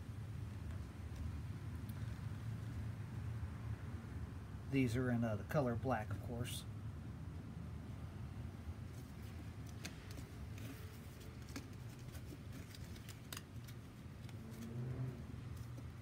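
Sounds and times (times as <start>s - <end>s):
low steady hum: 0.0s - 16.0s
cardboard tag clicks and rustles: 9.6s - 14.7s.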